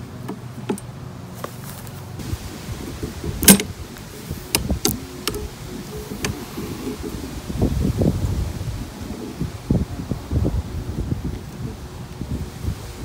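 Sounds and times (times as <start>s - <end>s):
metal linkage clicking and rattling: 3.2s - 6.8s.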